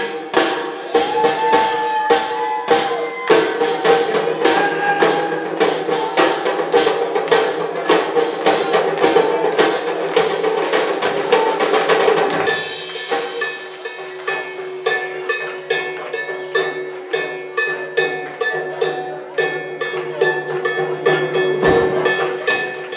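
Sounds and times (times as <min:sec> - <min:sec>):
live rock band playing: 0:00.0 - 0:14.9
sharp drum strikes: 0:00.0 - 0:15.9, 0:18.9 - 0:22.9.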